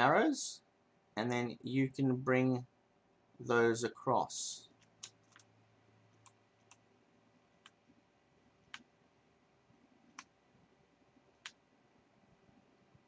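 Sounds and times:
faint computer mouse clicks: 7.6 - 7.8, 11.4 - 11.6.

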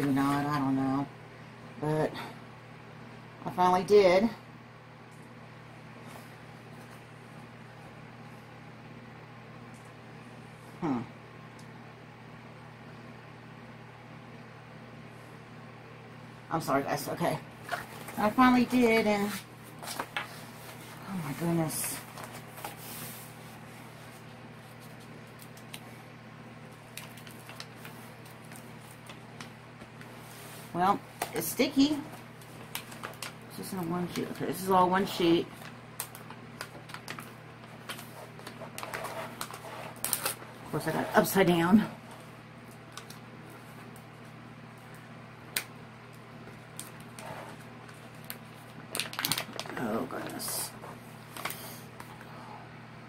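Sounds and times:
steady low hum: 0.0 - 53.0
plastic film crinkling: 26.8 - 30.2, 31.2 - 34.4, 35.1 - 41.4, 46.4 - 51.6
plastic sheet handling: 46.6 - 51.6.

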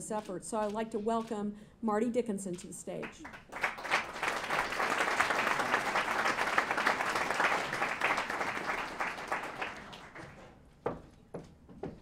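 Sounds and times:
audience applauding: 3.0 - 10.4.

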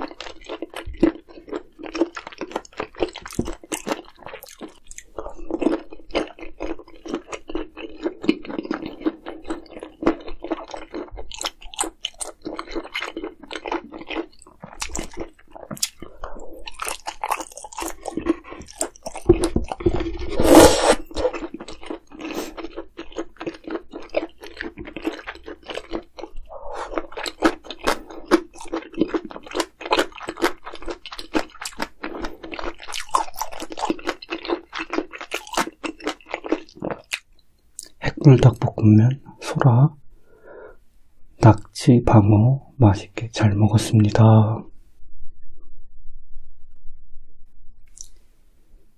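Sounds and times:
close chewing with crunches: 0.0 - 20.4, 21.0 - 38.1, 47.9 - 48.2.

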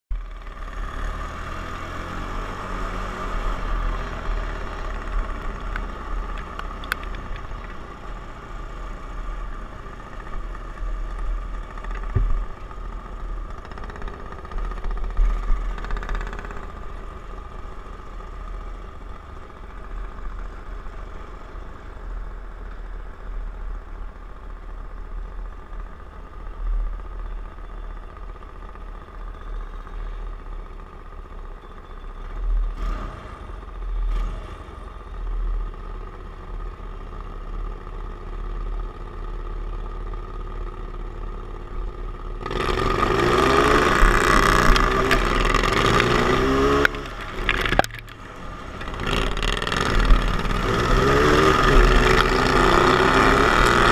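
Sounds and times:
lawn mower engine running: 39.0 - 53.9.

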